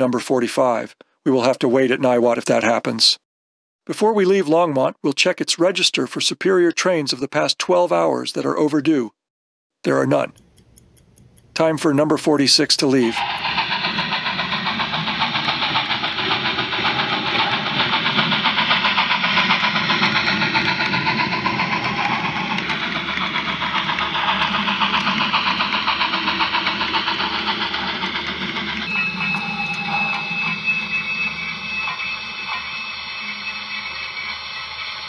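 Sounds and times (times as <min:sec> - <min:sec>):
model steam locomotive chuffing: 0:11.4 - 0:35.0
steady high tone: 0:12.8 - 0:35.0.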